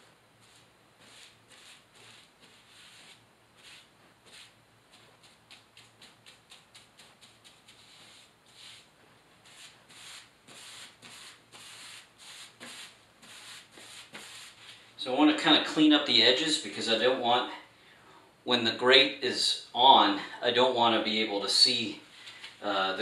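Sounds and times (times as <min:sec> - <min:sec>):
scratchy paint brush strokes: 0:00.4 - 0:14.9.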